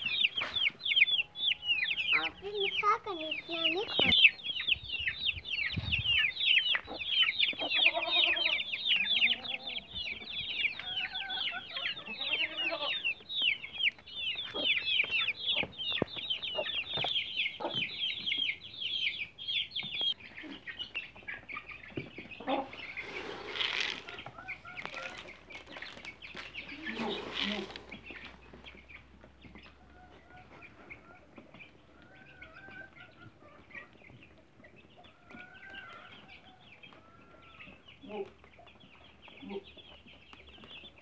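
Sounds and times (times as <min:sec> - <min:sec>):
chicks peeping: 0:00.0 - 0:41.0
hen clucking: 0:00.0 - 0:41.0
rustle: 0:22.2 - 0:29.0.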